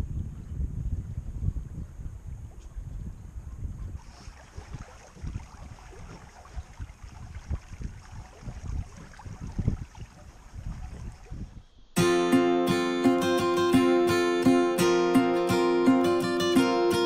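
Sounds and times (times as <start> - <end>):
wind buffeting microphone: 0.0 - 12.0
acoustic guitar music: 12.0 - 17.0.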